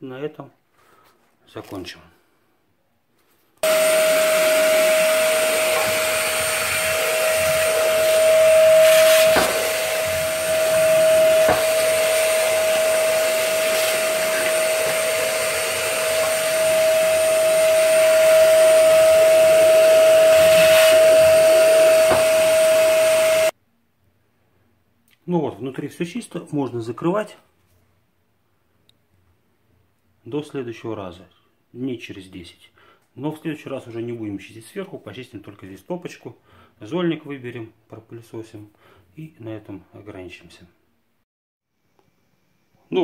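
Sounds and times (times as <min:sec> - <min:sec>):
vacuum cleaner whine: 0:03.6 - 0:23.6.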